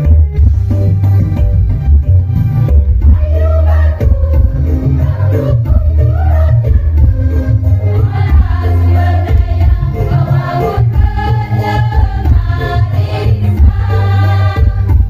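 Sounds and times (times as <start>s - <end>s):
heavy bass music: 0.0s - 15.0s
women's choir singing: 3.1s - 15.0s.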